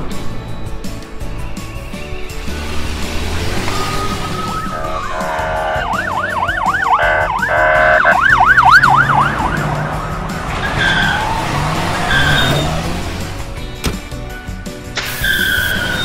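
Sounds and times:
police siren yelp: 0:03.7 - 0:12.8.

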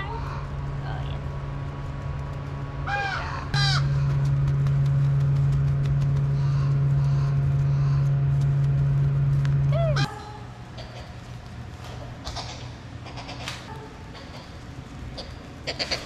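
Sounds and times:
loud low hum: 0:00.0 - 0:15.7
crows cawing: 0:02.8 - 0:04.0.

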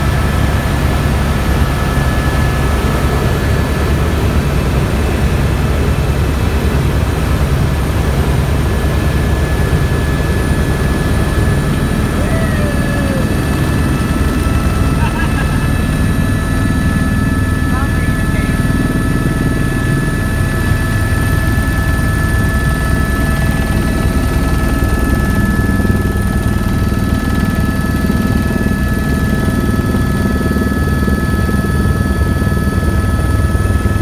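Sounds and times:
helicopter engine and rotor rumble: 0:00.0 - 0:34.0
high whine: 0:10.2 - 0:18.7.

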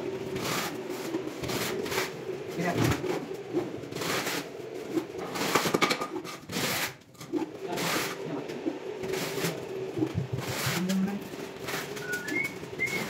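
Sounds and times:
wooden board scraping on tile: 0:04.0 - 0:08.2.

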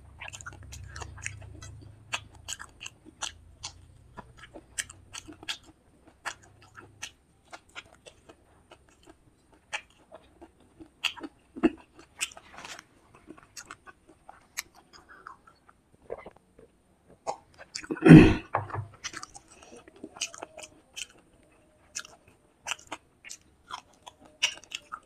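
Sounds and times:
chewing and mouth smacking: 0:00.0 - 0:25.0.

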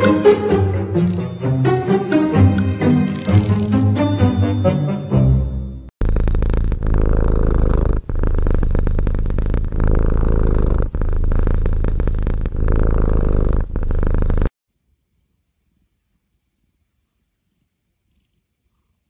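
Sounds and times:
cat purring: 0:06.0 - 0:14.6, 0:15.7 - 0:19.0.

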